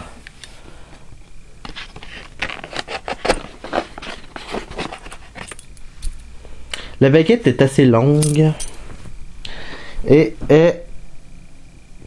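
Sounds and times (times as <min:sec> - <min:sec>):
box and foam handling noise: 0:01.6 - 0:05.6.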